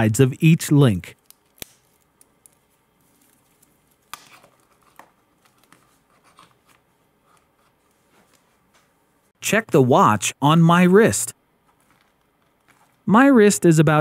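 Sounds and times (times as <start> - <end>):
watch bracelet rustles: 1.2 - 8.6.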